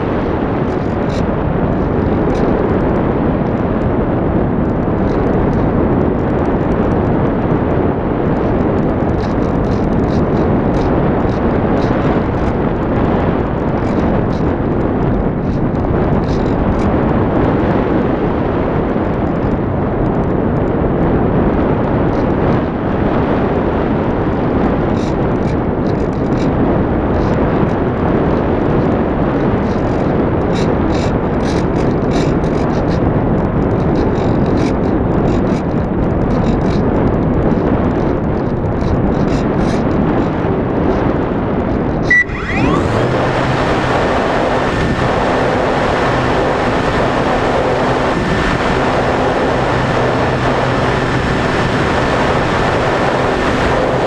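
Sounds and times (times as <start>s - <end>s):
airflow buffeting microphone: 0.0s - 54.0s
faint ticks and rattles: 8.2s - 17.0s, 24.6s - 42.2s
high beep: 42.1s - 43.0s.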